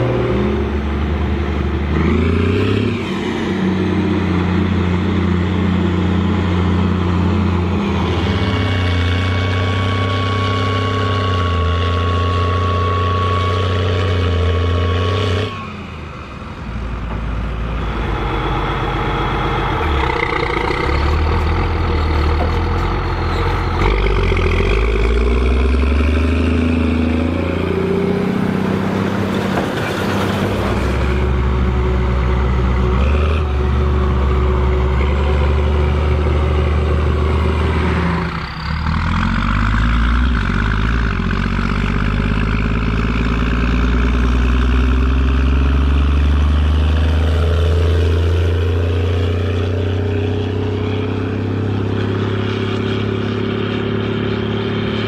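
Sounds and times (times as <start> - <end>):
baler machinery working: 0.0 - 39.9
tractor diesel engine running hard: 0.0 - 55.0.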